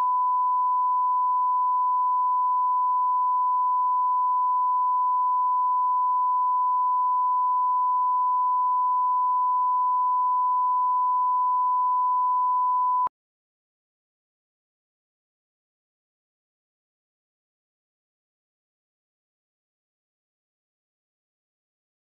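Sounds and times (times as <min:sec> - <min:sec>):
pure test tone beep: 0:00.0 - 0:13.1.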